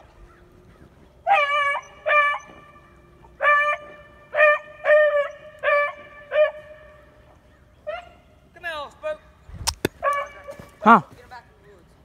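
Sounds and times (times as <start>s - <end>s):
dog barking: 1.3s - 2.6s, 3.4s - 6.8s, 10.0s - 10.6s.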